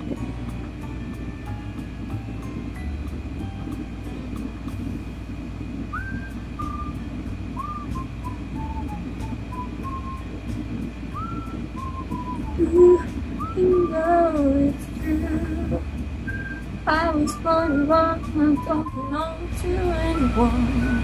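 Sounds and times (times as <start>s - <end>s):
pop song background music: 11.8s - 21.0s.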